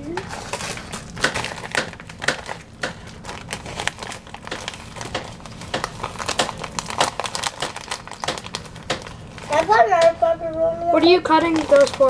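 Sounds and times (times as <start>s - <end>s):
plastic packaging crinkling: 0.0s - 10.1s, 11.0s - 12.0s.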